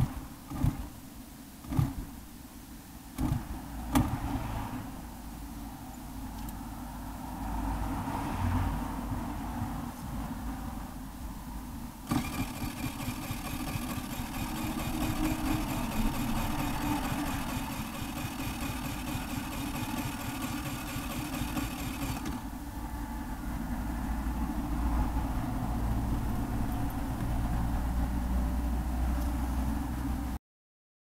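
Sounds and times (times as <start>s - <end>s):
electric starter cranking whir: 0.0s - 1.0s, 1.6s - 2.1s, 3.2s - 4.1s, 12.0s - 22.5s.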